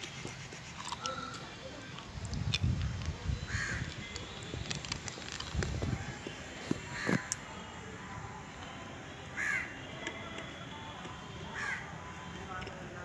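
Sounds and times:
crow cawing: 0:03.5 - 0:03.8, 0:06.9 - 0:07.3, 0:09.4 - 0:09.7, 0:11.6 - 0:11.8.

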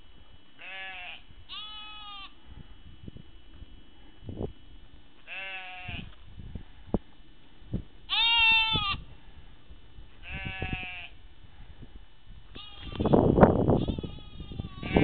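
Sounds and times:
sheep bleating: 0:00.6 - 0:02.4, 0:05.2 - 0:06.1, 0:08.1 - 0:09.0, 0:10.2 - 0:11.2, 0:12.6 - 0:13.2, 0:13.8 - 0:15.0.

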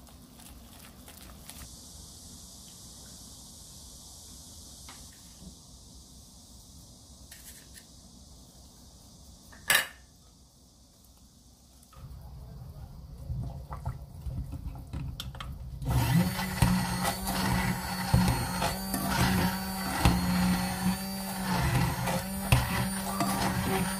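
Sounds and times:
immersion blender churning: 0:15.8 - 0:23.9
whisking sauce in a glass bowl: 0:16.2 - 0:23.9.

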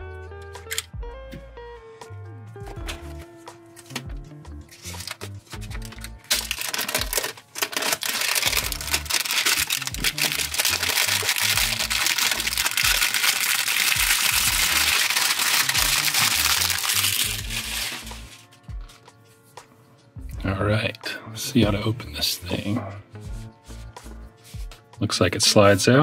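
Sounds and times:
plastic wrap crackling: 0:04.7 - 0:18.6.

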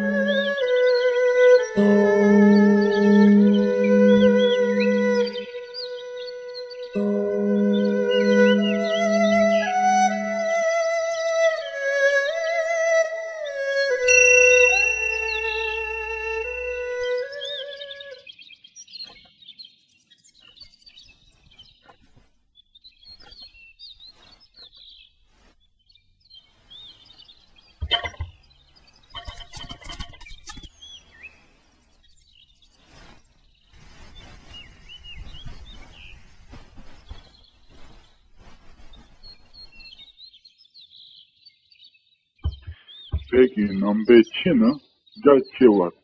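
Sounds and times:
small birds chirping: 0:00.1 - 0:10.2, 0:14.1 - 0:46.0
rustling: 0:20.5 - 0:40.3
soft knocks: 0:27.8 - 0:28.4, 0:42.4 - 0:43.4.

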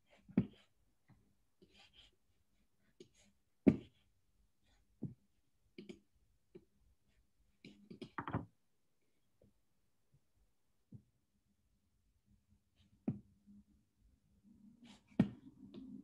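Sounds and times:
clicks and knocks: 0:08.2 - 0:08.5.

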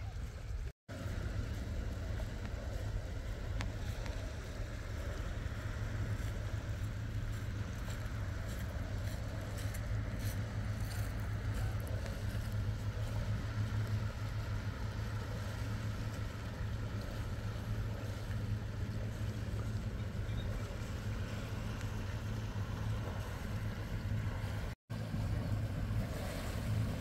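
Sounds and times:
boat engine droning: 0:00.0 - 0:27.0.

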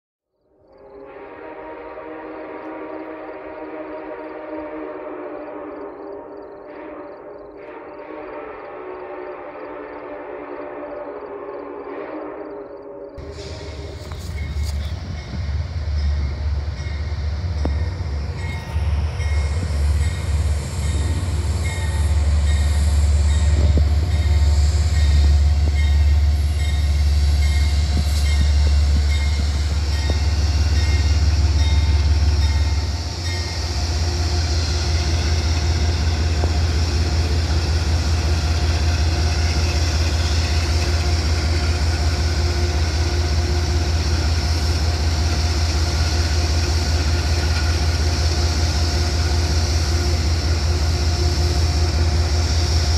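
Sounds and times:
diesel locomotive engine rumbling: 0:01.0 - 0:52.9.

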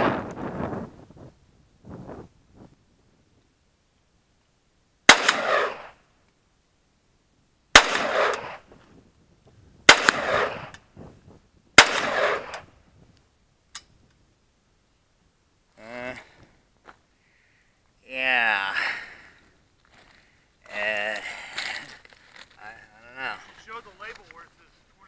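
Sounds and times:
gunshots with echo: 0:05.1 - 0:05.9, 0:07.8 - 0:08.6, 0:09.9 - 0:10.7, 0:11.8 - 0:12.6.

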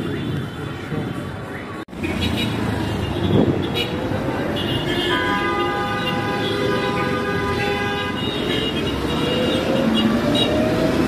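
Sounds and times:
street traffic: 0:00.0 - 0:11.0
vehicle horn long blast: 0:04.6 - 0:08.8.

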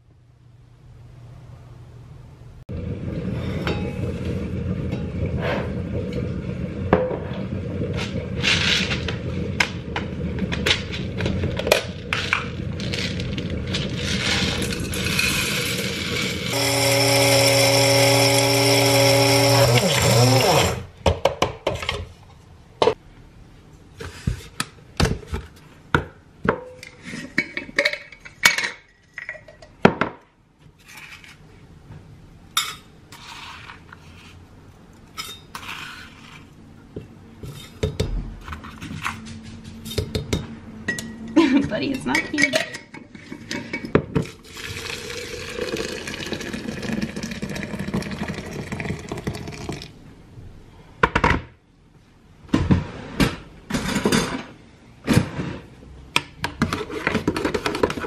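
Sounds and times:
electric coffee grinder running: 0:14.9 - 0:20.9
metal cup and utensils clinking: 0:39.9 - 0:44.9.

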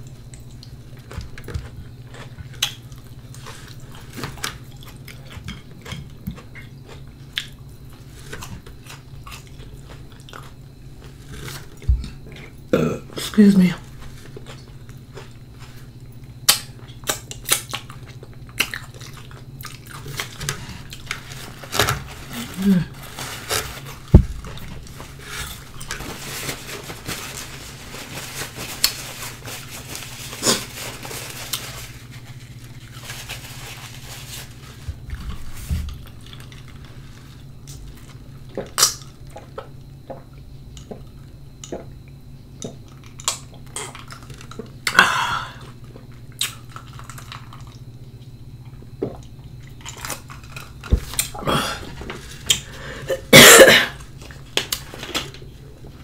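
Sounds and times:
paper napkin rustling: 0:20.2 - 0:37.4.

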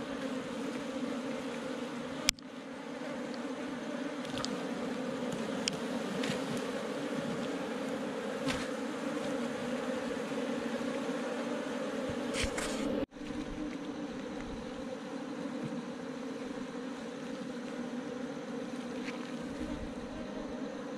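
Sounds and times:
honeybees buzzing: 0:00.0 - 0:20.9
faint ticks: 0:04.2 - 0:06.7.

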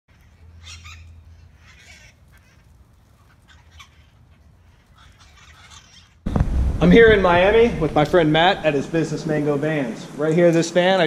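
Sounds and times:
parakeets squawking: 0:00.1 - 0:02.7
low steady rumble: 0:06.2 - 0:10.2.

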